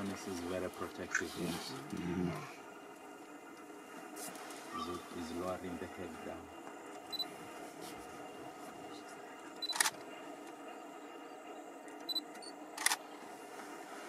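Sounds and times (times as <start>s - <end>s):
camera shutter clicks: 12.8s - 13.0s.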